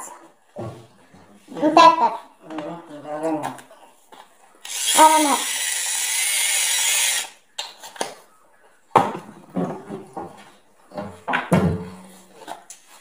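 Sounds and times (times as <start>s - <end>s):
electric pepper grinder whirring: 4.6s - 7.4s
cupboard knocks and clatter: 11.0s - 12.0s.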